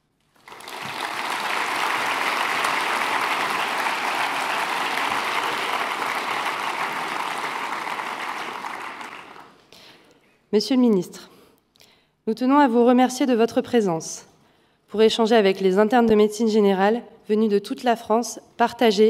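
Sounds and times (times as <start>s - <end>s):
large audience applauding: 0.3s - 9.6s.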